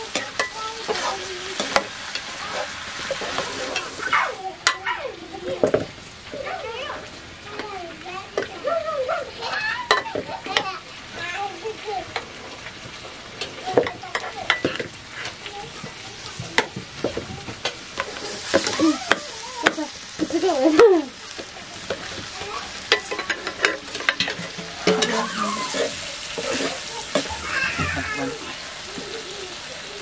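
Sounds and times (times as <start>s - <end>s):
frying sizzle: 0.0s - 30.0s
spoon scraping pot: 22.9s - 28.3s.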